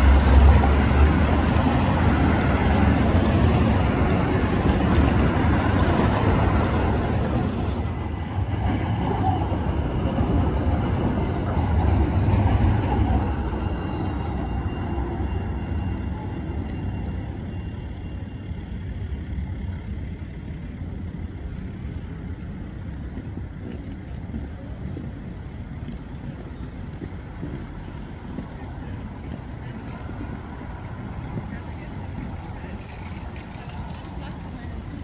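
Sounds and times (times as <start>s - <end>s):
passing car traffic: 0.0s - 7.9s
trams rumbling: 0.0s - 35.0s.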